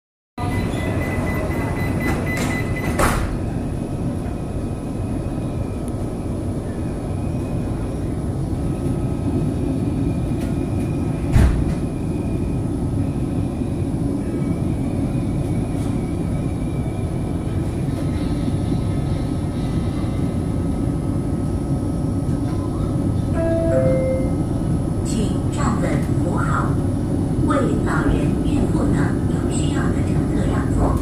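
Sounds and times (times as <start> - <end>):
high door warning tone: 0.4 - 3.3, 23.4 - 24.6
train rumble: 0.4 - 31.0.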